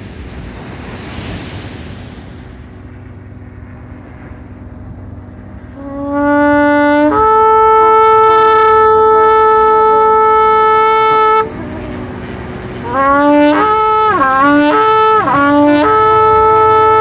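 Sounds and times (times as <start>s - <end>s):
surf: 0.0s - 17.0s
wind: 0.0s - 17.0s
shofar horn blowing: 5.6s - 17.0s.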